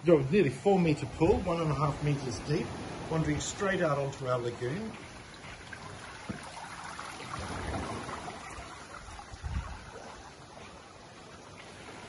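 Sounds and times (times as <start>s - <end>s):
gentle surf on sand: 0.0s - 12.0s
wind buffeting microphone: 7.3s - 10.4s.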